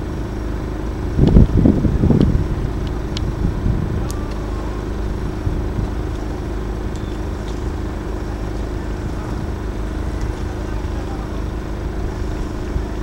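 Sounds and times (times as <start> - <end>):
faint steady hum: 0.0 - 13.0
low outdoor rumble: 0.0 - 13.0.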